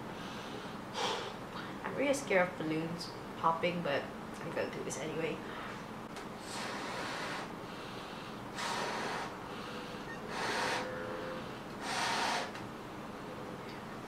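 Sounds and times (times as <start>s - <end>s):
person blowing up balloon: 6.4s - 7.6s, 8.5s - 9.4s, 10.2s - 12.5s.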